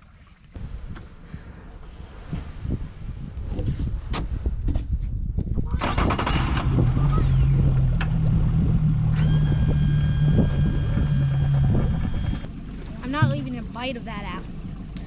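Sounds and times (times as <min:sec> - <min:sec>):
boat motor running: 0:06.8 - 0:15.0.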